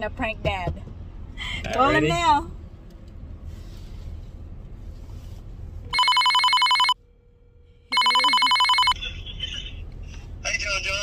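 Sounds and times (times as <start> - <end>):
car cabin rumble: 0.0 - 6.0
phone ringing signal: 5.9 - 7.0, 7.9 - 9.0.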